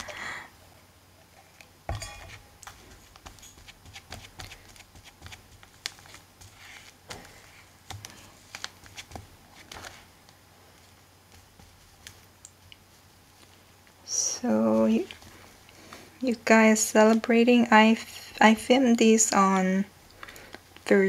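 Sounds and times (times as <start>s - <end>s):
paintbrush dabbing and brushing: 2.2s - 10.1s, 10.7s - 13.6s.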